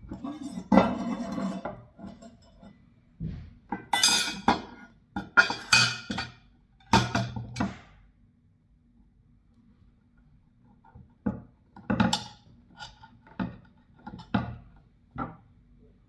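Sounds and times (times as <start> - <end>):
metal plates clanking and scraping: 0.0 - 2.7.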